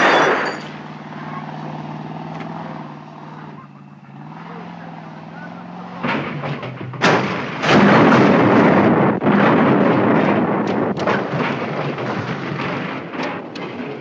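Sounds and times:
sharp bang: 5.8 - 14.0
explosion blast: 6.0 - 14.0
fire burning: 6.0 - 14.0
fire crackling and popping: 7.0 - 14.0.

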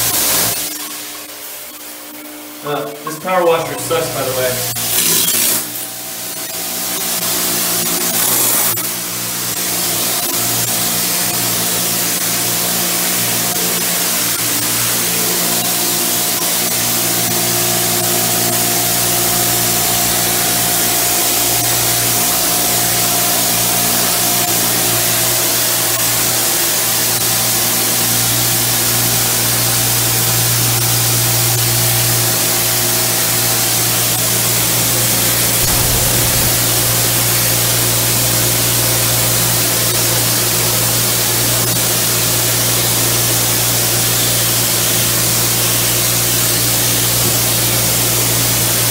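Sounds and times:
power washer spraying tiles: 4.0 - 48.9
steady low hum: 35.1 - 38.5.

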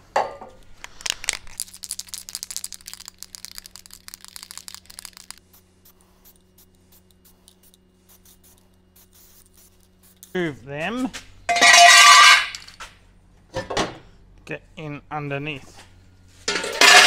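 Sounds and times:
spray can ball rattling: 1.0 - 10.4.

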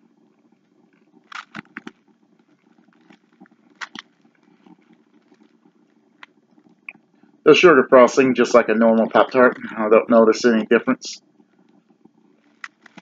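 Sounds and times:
faint low hum: 0.0 - 13.0
crunchy chewing: 1.2 - 6.8.

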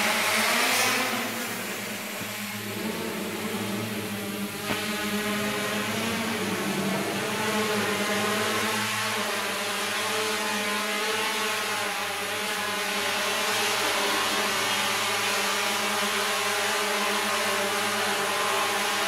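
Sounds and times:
drone propellers humming: 0.0 - 19.0.

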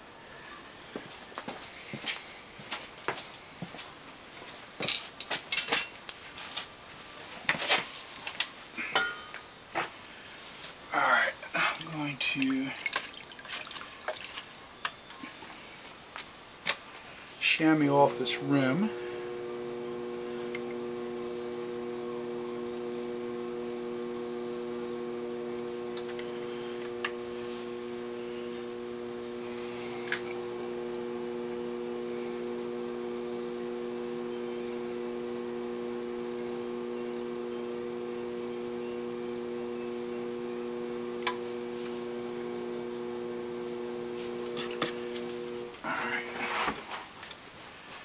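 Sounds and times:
potter's wheel motor humming: 17.8 - 46.4.

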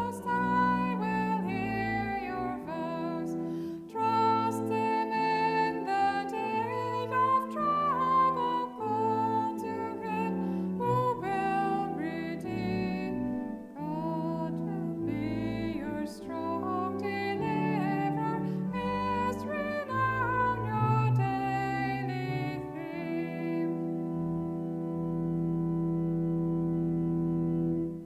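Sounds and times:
woman singing a hymn: 0.0 - 24.2
instrumental accompaniment: 0.0 - 28.0.

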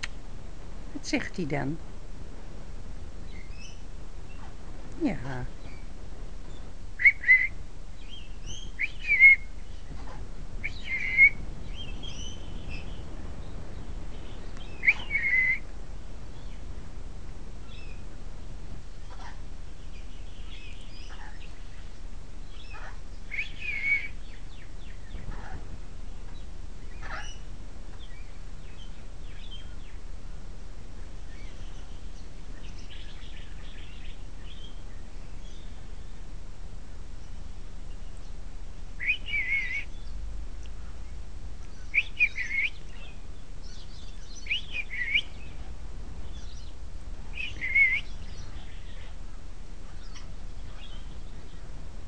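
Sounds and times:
faint chirps and clicks: 0.0 - 0.2, 14.3 - 15.5, 20.5 - 21.6, 39.0 - 45.7
parrot calling: 26.9 - 27.4.

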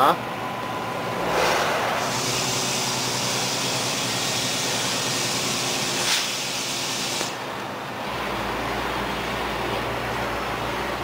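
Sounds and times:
diesel engine hum: 7.3 - 11.0.

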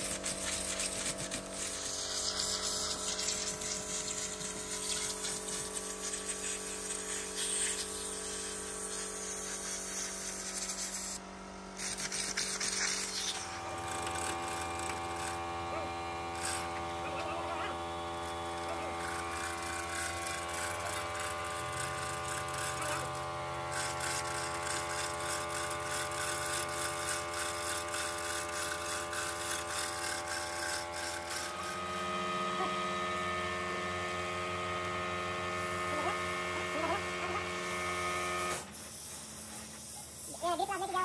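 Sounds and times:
chain hoist motor whining: 0.0 - 11.2, 11.8 - 41.0.

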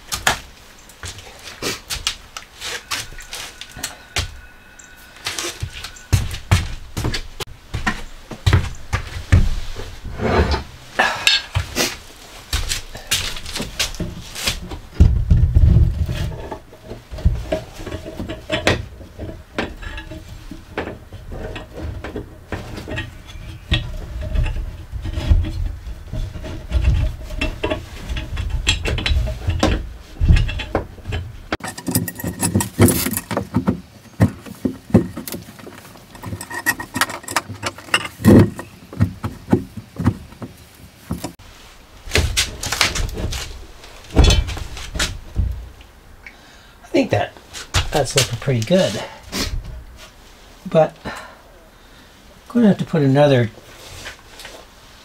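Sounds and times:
heavy thuds: 2.8 - 50.5
wooden board knocks and clunks: 5.5 - 10.7, 12.5 - 41.4, 42.1 - 45.8
metal bars clinking: 16.3 - 33.6, 34.9 - 38.8.

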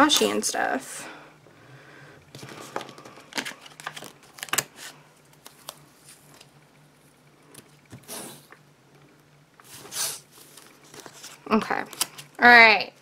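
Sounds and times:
paper handling: 2.3 - 6.5, 9.7 - 12.4.

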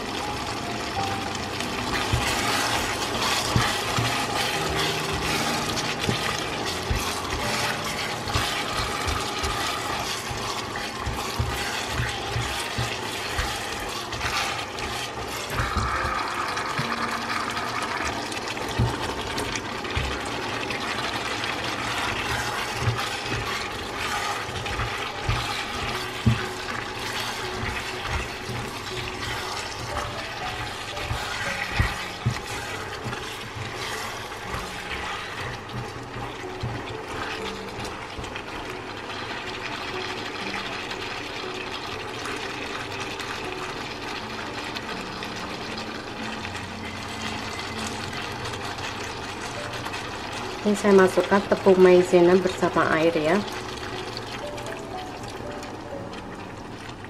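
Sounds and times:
food sizzling in a wok: 0.0 - 57.0
spatula knocking and scraping pan: 1.8 - 17.2, 18.6 - 20.9, 21.7 - 38.4.

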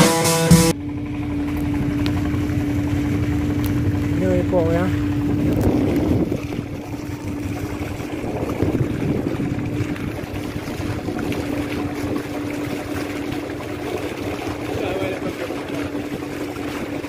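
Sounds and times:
boat engine humming: 0.0 - 17.0.

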